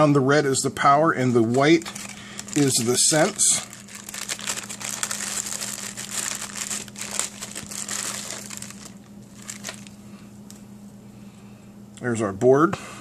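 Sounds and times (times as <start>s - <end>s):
plastic bag crinkling: 1.2s - 10.0s.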